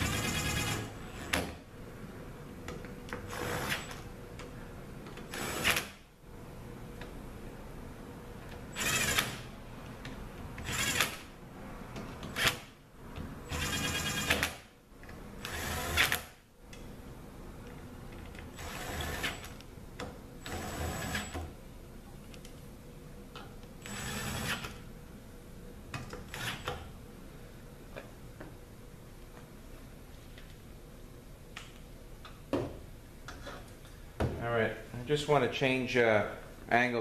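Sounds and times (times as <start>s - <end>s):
cordless drill whirring: 8.8s - 9.4s, 23.8s - 24.7s.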